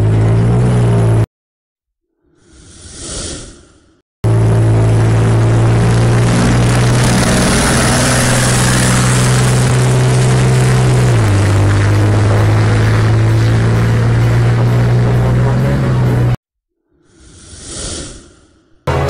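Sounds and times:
tank engines droning: 0.0s - 1.2s, 4.3s - 16.4s.

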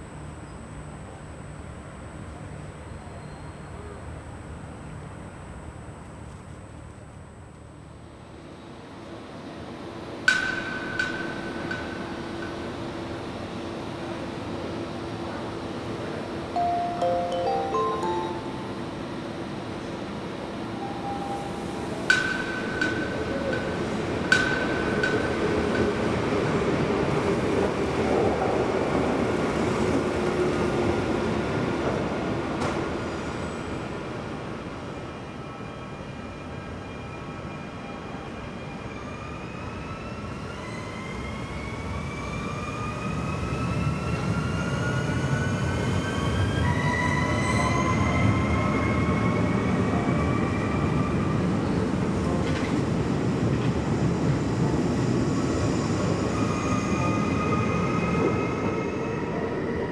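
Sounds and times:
rumble of wheels on rail: 19.0s - 59.9s.

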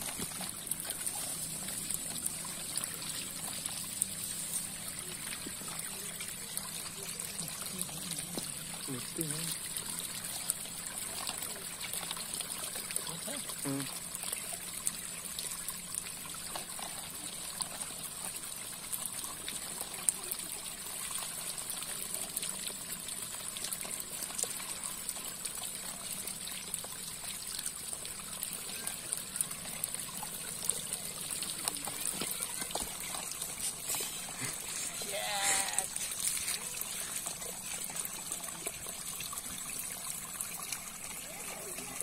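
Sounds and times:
water trickling: 0.0s - 42.0s
faint wet clicks: 26.3s - 35.0s.

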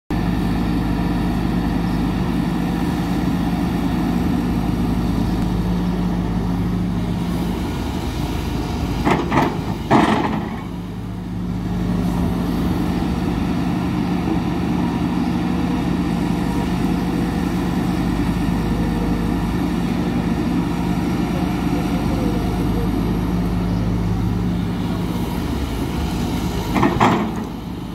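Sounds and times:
excavator diesel engine running: 0.1s - 27.9s
loud knocks: 26.8s - 27.5s.

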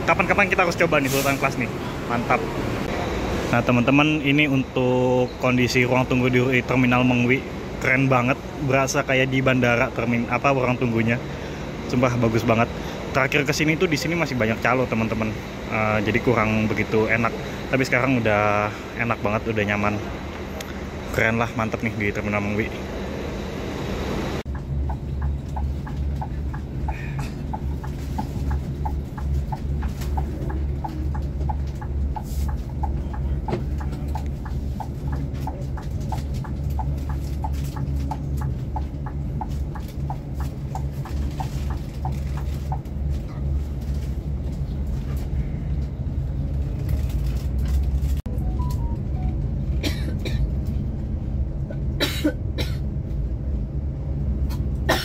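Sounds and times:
coach engine rumbling: 0.0s - 55.0s
regular ticking: 24.5s - 42.9s.

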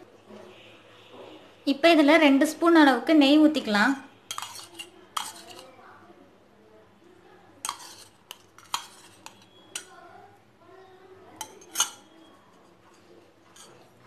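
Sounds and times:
wooden spatula stirring batter: 4.2s - 5.8s, 7.5s - 10.4s, 11.3s - 14.0s
steel spoon clinking against metal: 4.3s - 5.7s, 7.6s - 10.0s, 11.4s - 12.2s.

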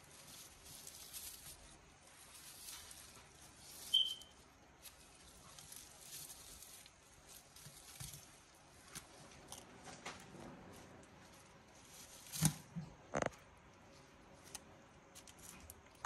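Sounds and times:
crackling and rustling: 0.0s - 16.0s
short high chirp: 3.9s - 4.3s.

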